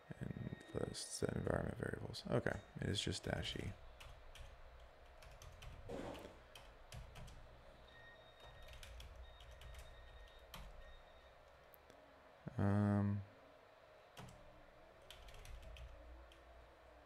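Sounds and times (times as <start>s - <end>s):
computer keyboard typing: 4.0s - 5.9s, 6.5s - 7.5s, 8.4s - 11.0s, 14.2s - 16.5s.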